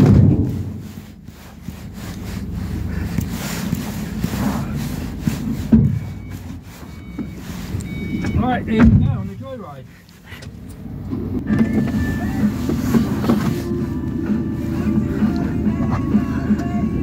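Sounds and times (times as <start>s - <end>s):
rattles and knocks: 0.0s - 1.0s, 5.2s - 7.4s, 8.1s - 9.4s
minibus engine and road rumble: 0.0s - 17.0s.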